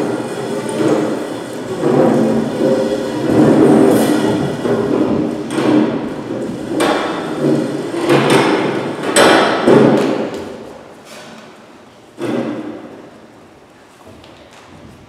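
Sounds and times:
chairs knocking on hard floor: 0:00.6 - 0:10.5.

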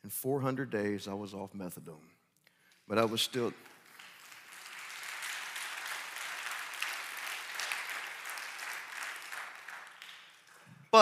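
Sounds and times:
audience applauding: 0:03.0 - 0:10.7.

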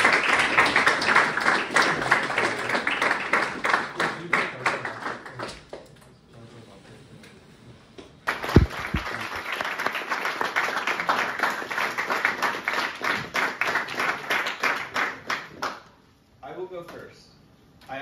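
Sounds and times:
people clapping: 0:00.0 - 0:06.0, 0:08.2 - 0:16.0.

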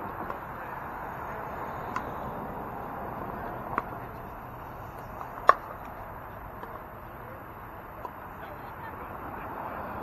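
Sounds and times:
paddle striking ball: 0:05.0 - 0:06.0.

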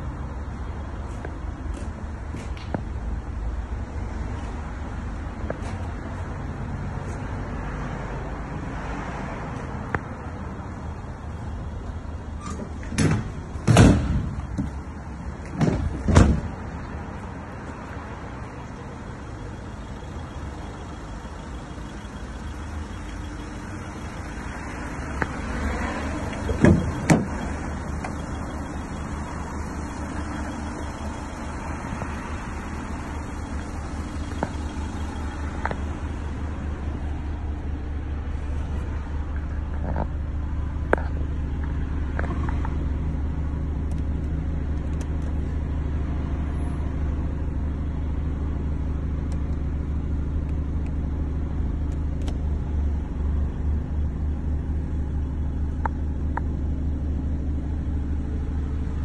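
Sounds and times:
low outdoor rumble: 0:00.0 - 0:59.0
van doors clunking shut: 0:12.3 - 0:16.7, 0:24.0 - 0:29.2.

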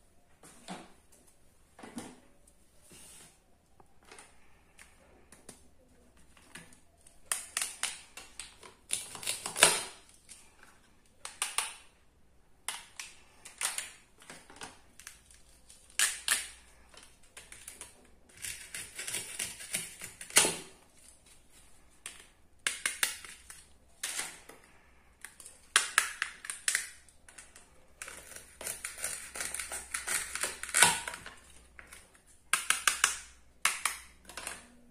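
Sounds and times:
plastic toy pieces clicking: 0:25.2 - 0:31.2, 0:32.5 - 0:34.6.

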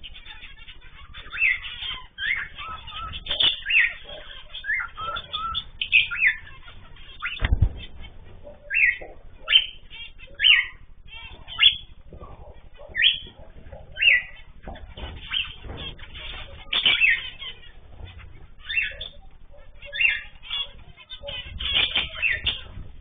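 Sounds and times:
birds chirping: 0:00.0 - 0:23.0
low thump: 0:07.4 - 0:08.4.

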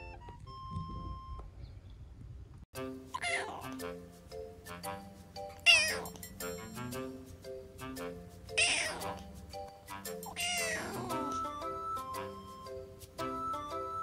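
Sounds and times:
light background music: 0:02.8 - 0:14.0
kitten meowing: 0:05.7 - 0:06.2, 0:08.6 - 0:09.2, 0:10.4 - 0:11.3.

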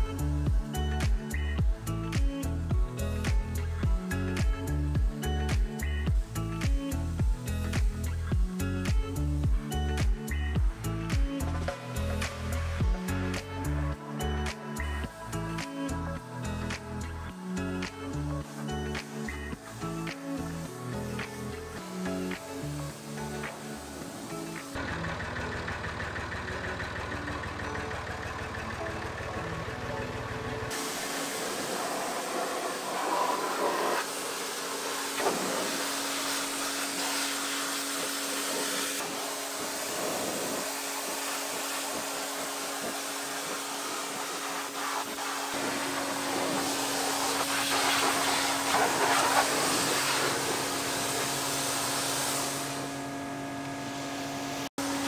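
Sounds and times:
music: 0:00.0 - 0:55.0
pressure washer machine hum: 0:17.1 - 0:55.0
pressure washer jet hissing: 0:18.5 - 0:24.9, 0:30.6 - 0:53.0.

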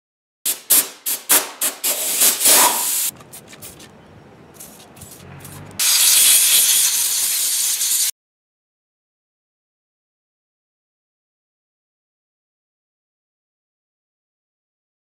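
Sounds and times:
compressed air blasts: 0:00.5 - 0:03.8, 0:04.6 - 0:08.1
trigger spray bottle squirts: 0:00.5 - 0:03.9.

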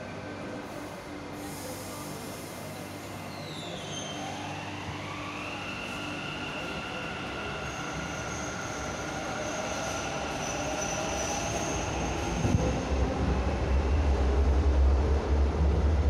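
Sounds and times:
heavy low train rumble: 0:06.0 - 0:16.0.

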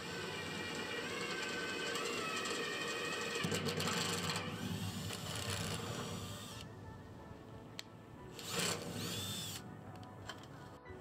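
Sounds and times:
power drill into metal: 0:00.0 - 0:06.7, 0:08.4 - 0:09.6
background music: 0:00.0 - 0:11.0.

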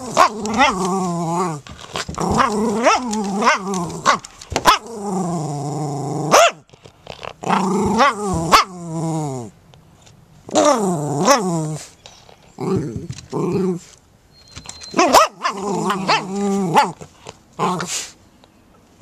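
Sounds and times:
dog barking muffled by ball: 0:06.3 - 0:06.6, 0:15.0 - 0:17.0.

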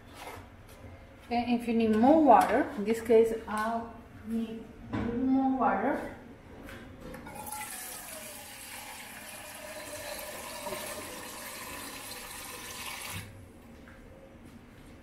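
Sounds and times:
tap water running into pot: 0:07.3 - 0:13.3.

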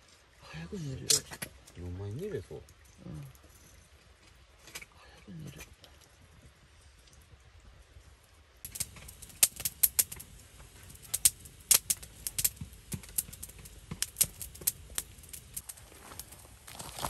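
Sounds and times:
sharp clicks and taps: 0:08.7 - 0:15.7.

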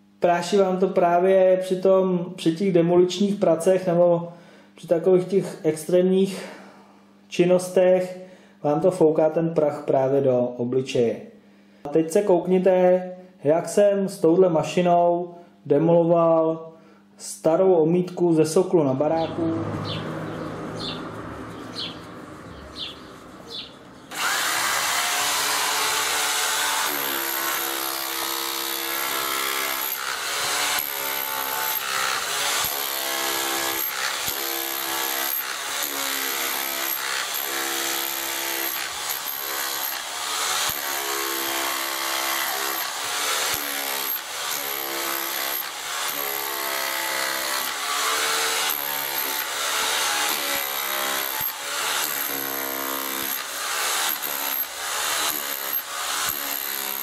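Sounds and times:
rotary hammer chiselling masonry: 0:23.5 - 0:57.0.

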